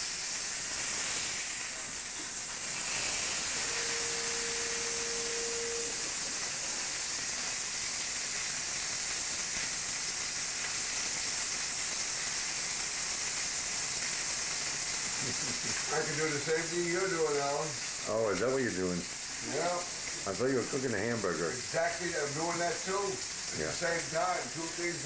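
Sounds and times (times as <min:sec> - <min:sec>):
hamburger sizzling in a pan: 0:00.0 - 0:25.0
short steady tone: 0:03.4 - 0:06.2.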